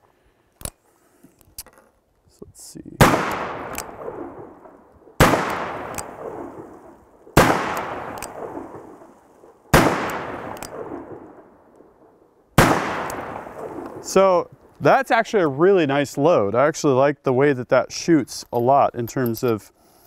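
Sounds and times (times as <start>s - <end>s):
revolver shots echoing: 3.0s - 9.1s, 9.7s - 11.5s, 12.6s - 14.1s.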